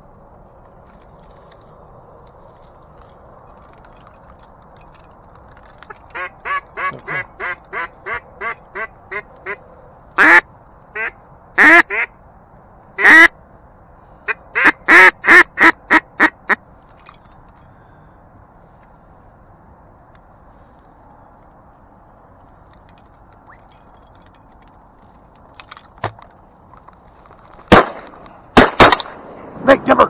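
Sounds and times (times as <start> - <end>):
duck call quacks: 6.1 - 9.6, 10.2 - 12.1, 13.0 - 13.3, 14.3 - 16.6.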